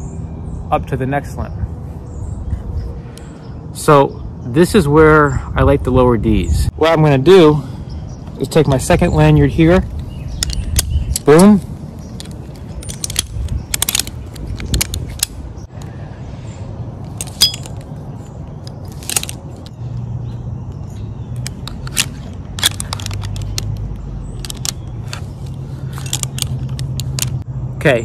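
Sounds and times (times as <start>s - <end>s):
metal climbing hardware clinking: 8.3s - 15.4s, 17.0s - 19.8s, 20.7s - 27.4s.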